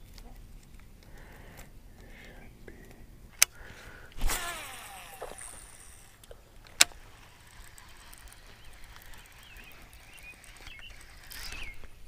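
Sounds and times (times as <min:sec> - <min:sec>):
reel spool whine: 0:04.2 - 0:06.2, 0:07.0 - 0:12.0
reel ticking: 0:04.2 - 0:12.0.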